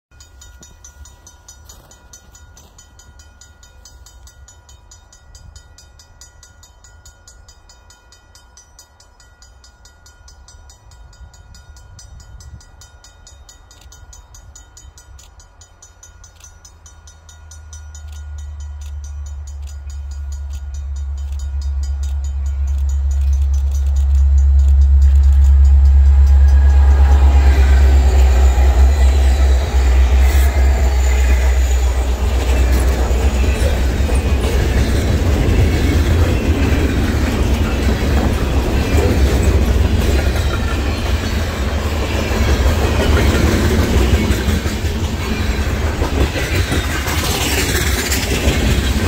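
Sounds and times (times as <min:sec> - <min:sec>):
diesel locomotives rumbling: 0:10.3 - 0:49.0.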